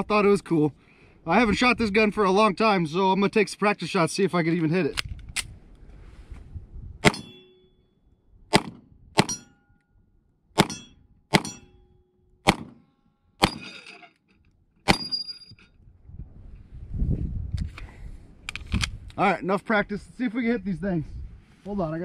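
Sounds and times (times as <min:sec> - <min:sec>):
pistol shots: 0:07.0 - 0:07.4, 0:08.5 - 0:09.5, 0:10.6 - 0:11.6, 0:12.4 - 0:12.8, 0:13.4 - 0:13.7
metallic ring of steel targets: 0:07.0 - 0:07.8, 0:09.2 - 0:09.8, 0:10.6 - 0:12.1, 0:13.4 - 0:14.2, 0:14.9 - 0:15.7.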